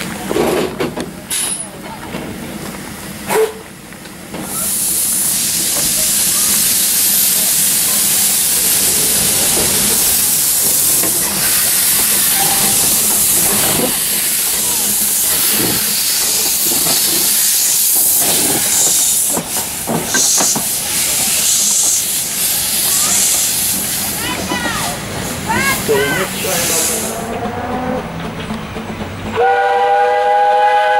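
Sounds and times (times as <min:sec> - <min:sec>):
steam locomotive passing: 0:00.0 - 0:30.9
hiss of escaping steam: 0:04.3 - 0:27.3.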